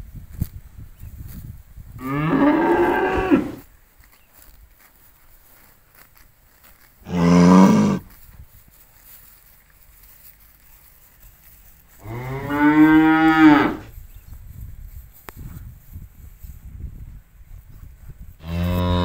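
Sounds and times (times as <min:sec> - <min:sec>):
cattle mooing: 0:02.0 - 0:03.6, 0:07.1 - 0:08.1, 0:18.4 - 0:19.0.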